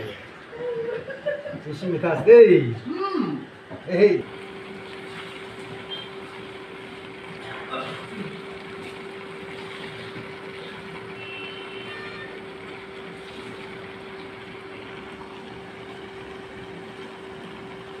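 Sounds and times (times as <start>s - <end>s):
steam hissing and bubbling: 4.2s - 12.2s.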